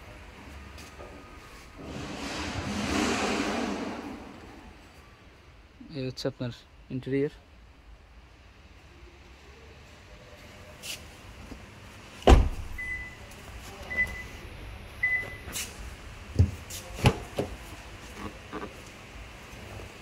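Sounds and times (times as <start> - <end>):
car door thumping shut: 12.2 - 12.8.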